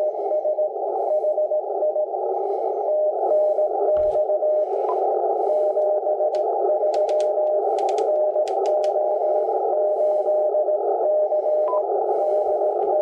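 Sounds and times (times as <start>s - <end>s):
radio band noise: 0.0s - 13.0s
sharp clicks: 5.8s - 9.0s.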